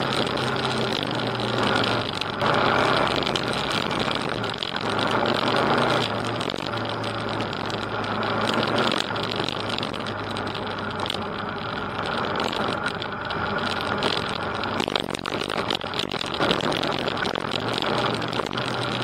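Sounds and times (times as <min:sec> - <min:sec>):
knocks and rattles on gravel: 0:00.0 - 0:19.0
motorcycle engine running: 0:00.0 - 0:19.0.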